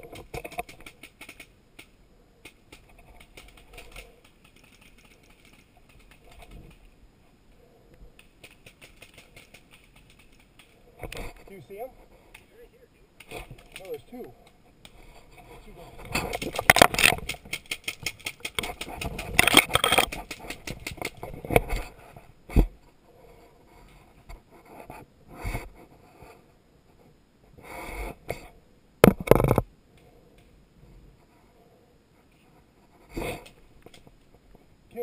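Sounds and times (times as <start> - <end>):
brush and leaves rustling against mic: 0.0 - 27.6
knocks and thumps: 29.0 - 29.7.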